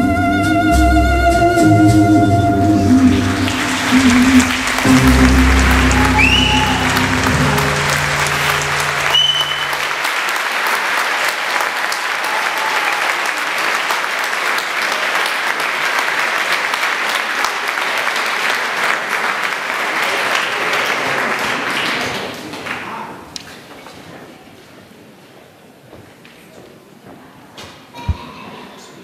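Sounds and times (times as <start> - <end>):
tango music: 0.0 - 10.0
audience applauding: 2.9 - 23.2.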